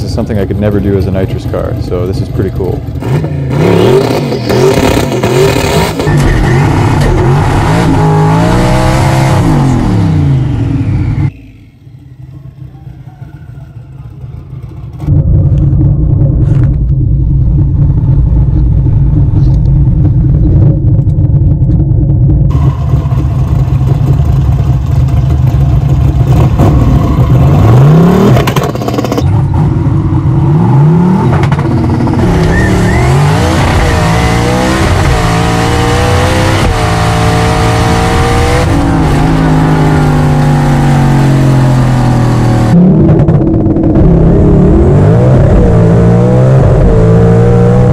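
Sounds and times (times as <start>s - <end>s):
drag car engine revving: 0.1s - 12.8s, 13.9s - 47.9s.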